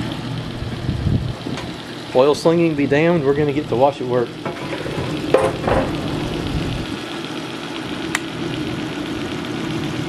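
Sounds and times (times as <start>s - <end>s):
refrigerator compressor rattling: 0.6s - 10.0s.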